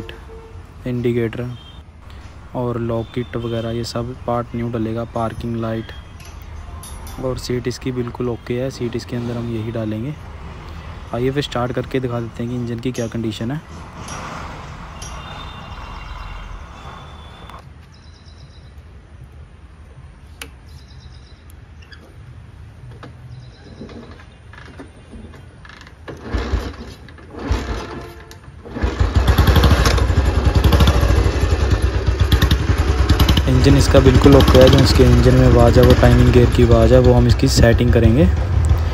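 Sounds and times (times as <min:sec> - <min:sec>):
motorcycle engine coughing and running: 0:26.2 - 0:38.9.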